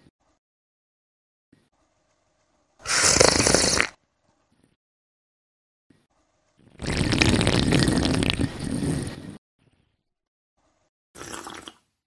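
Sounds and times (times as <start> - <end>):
person slurping a drink: 2.8 - 4.0, 6.7 - 9.4, 11.2 - 11.8.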